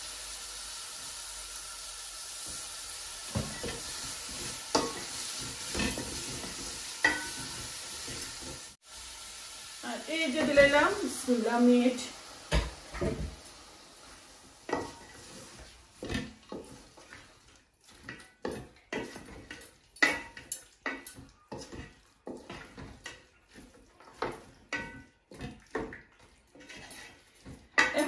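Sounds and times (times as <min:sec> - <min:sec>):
wooden spatula stirring meat: 0:03.3 - 0:08.7, 0:14.7 - 0:28.0.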